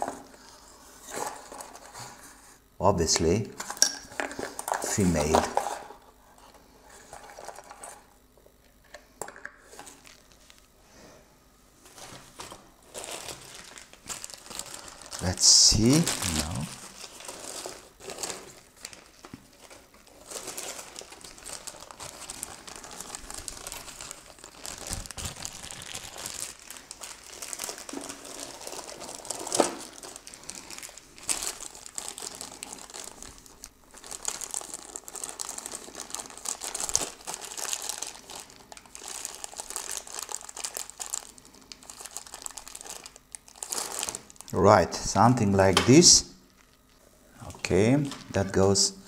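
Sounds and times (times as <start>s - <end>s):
plastic bags rustling: 11.8s - 44.8s, 45.7s - 47.1s.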